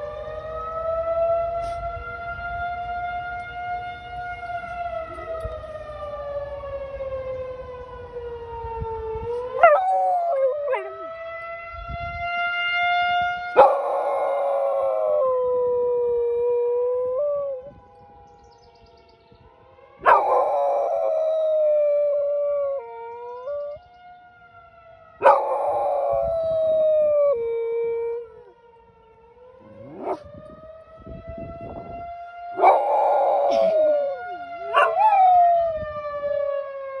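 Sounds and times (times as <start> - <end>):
tornado siren wailing: 0.0 - 37.0
dog howling: 9.5 - 11.1, 13.6 - 17.6, 20.0 - 23.8, 25.2 - 28.5, 29.6 - 30.2, 32.6 - 35.8.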